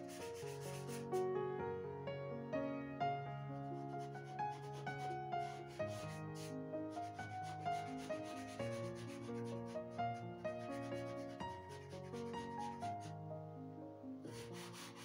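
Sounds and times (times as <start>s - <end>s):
soft background music: 0.0s - 15.0s
charcoal scratching on paper: 0.2s - 1.0s, 3.8s - 9.2s, 14.4s - 15.0s.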